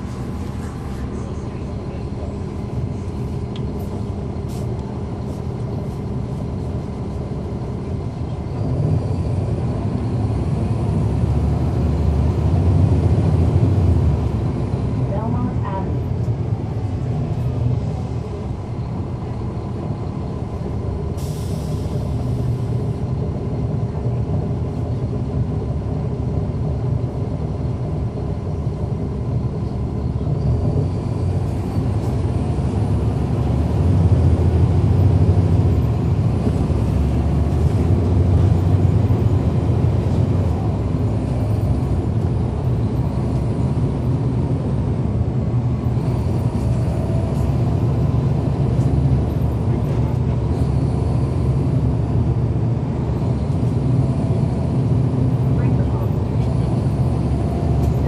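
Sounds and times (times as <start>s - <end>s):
bus diesel engine droning: 0.0s - 58.0s
air brakes hissing: 21.1s - 22.9s.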